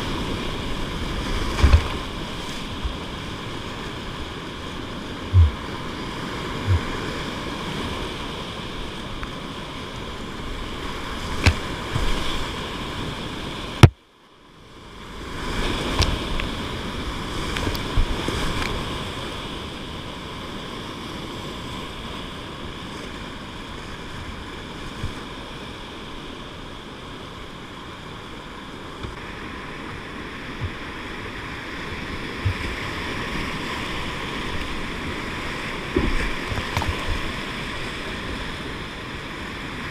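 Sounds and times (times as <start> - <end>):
paddle splashes: 0.6 - 9.0, 29.0 - 38.8.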